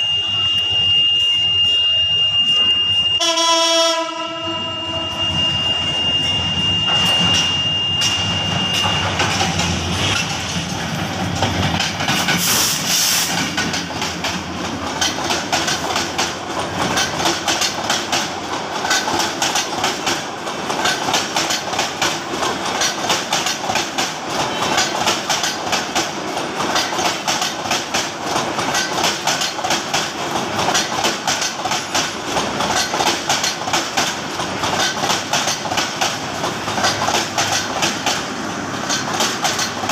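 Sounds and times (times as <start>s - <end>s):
locomotive horn: 3.2s - 5.5s
train wheels clattering: 6.9s - 39.9s.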